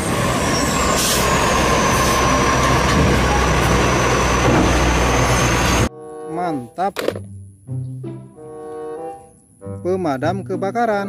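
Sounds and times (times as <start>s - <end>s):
garbage truck engine running: 0.0s - 5.9s
hydraulic whine: 0.0s - 5.9s.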